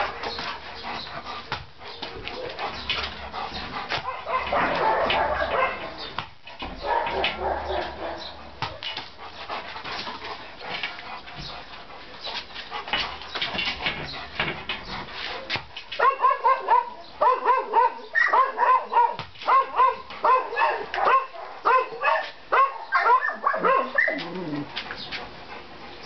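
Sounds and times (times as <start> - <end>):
dog whining and yelping: 22.9 - 25.0.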